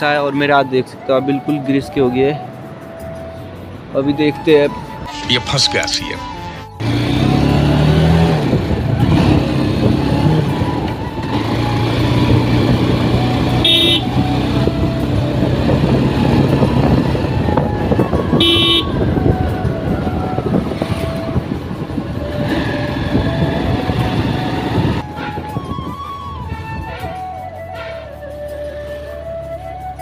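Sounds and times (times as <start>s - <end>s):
wind rush: 8.3s - 11.2s, 14.2s - 27.3s
motorcycle horn beeps: 13.6s - 14.2s, 18.4s - 19.0s
motorcycle engine running: 20.7s - 25.0s.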